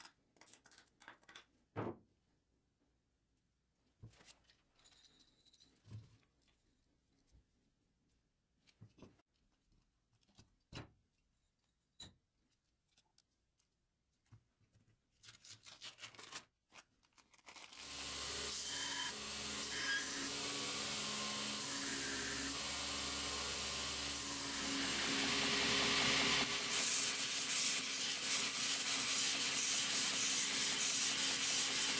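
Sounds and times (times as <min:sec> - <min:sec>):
belt grinder running: 0:17.8 - 0:31.9.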